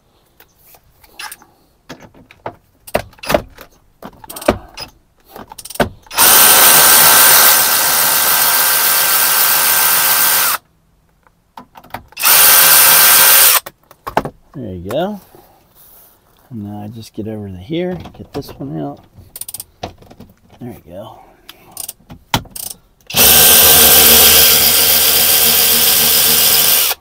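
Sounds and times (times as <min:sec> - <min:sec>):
electric ratchet motor whine: 0:06.1 - 0:10.6, 0:12.2 - 0:13.6, 0:23.1 - 0:27.0.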